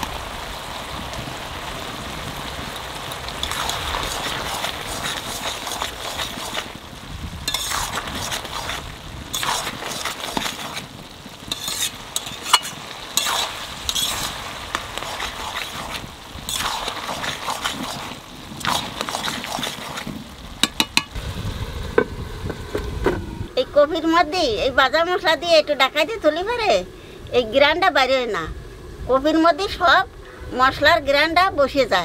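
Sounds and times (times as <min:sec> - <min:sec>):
light sizzle: 0:00.0 - 0:32.0
metal spatula scraping pan: 0:03.4 - 0:06.7, 0:07.5 - 0:10.9, 0:11.5 - 0:21.1.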